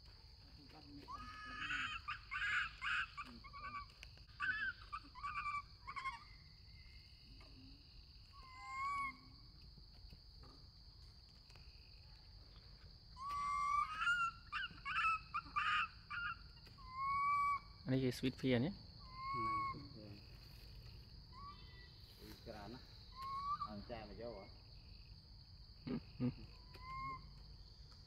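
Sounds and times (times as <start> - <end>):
monkey high-pitched cries: 1.0 - 6.6, 8.3 - 9.3, 13.2 - 17.8, 19.0 - 20.3, 21.3 - 22.0, 23.0 - 23.9, 25.9 - 27.4.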